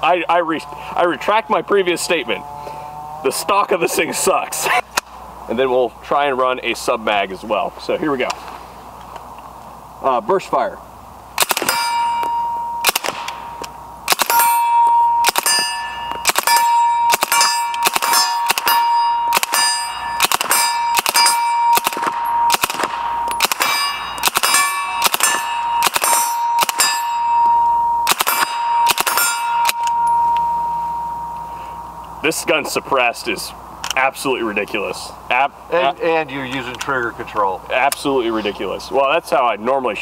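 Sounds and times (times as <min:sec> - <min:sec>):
steel plate target ringing: 0:11.4 - 0:32.1.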